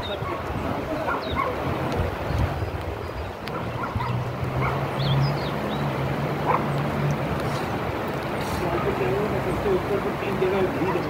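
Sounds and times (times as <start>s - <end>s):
road and wind noise: 0.0s - 11.0s
vehicle engine hum: 1.0s - 11.0s.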